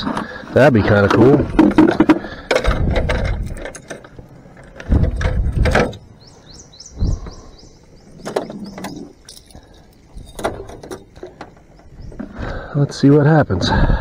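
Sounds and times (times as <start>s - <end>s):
high chirps: 5.9s - 10.4s.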